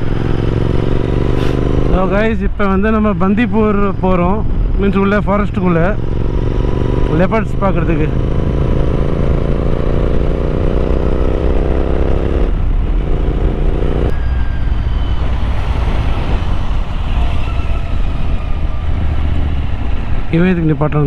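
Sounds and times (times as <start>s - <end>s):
motorcycle engine revving: 0.0s - 2.3s, 3.5s - 17.0s.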